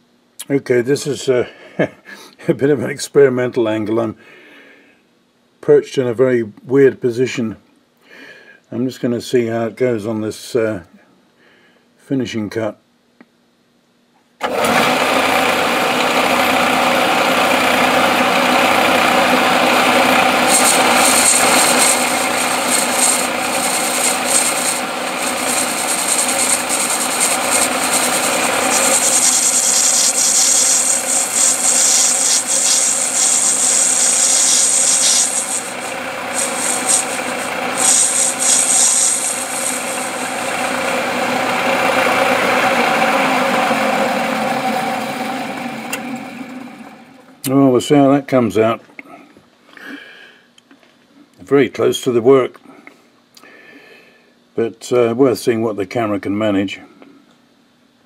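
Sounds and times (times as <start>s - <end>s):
metal lathe running: 14.4s - 47.3s
tool cutting brass hiss: 17.8s - 41.6s.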